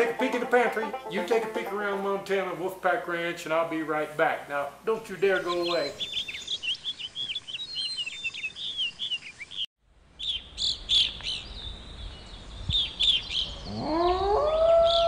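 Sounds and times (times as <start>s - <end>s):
birds chirping: 0.0s - 2.6s, 4.8s - 15.0s
wolf howling: 13.7s - 15.0s.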